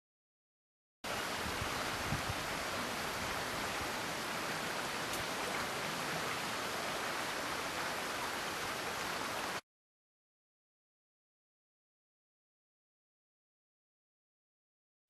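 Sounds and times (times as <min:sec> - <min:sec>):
stream rushing: 0:01.1 - 0:09.6.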